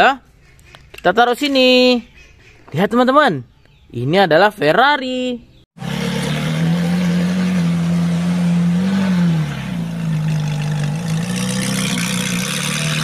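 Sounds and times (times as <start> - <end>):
car engine idling: 5.8 - 13.0.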